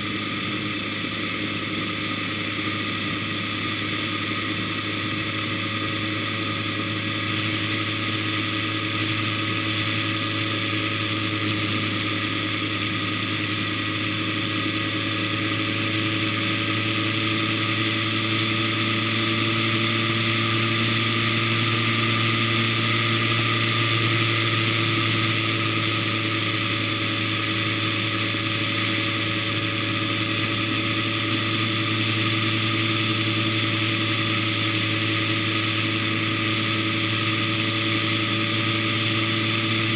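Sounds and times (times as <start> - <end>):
vehicle engine humming: 0.0 - 39.9.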